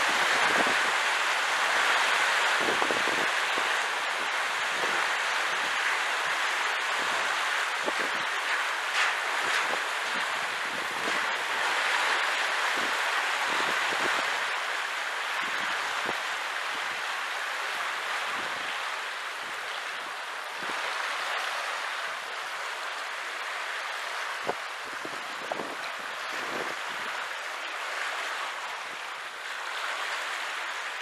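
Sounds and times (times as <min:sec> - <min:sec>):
faint water splashes: 0:00.0 - 0:31.0
water rushing through sluices: 0:00.0 - 0:31.0.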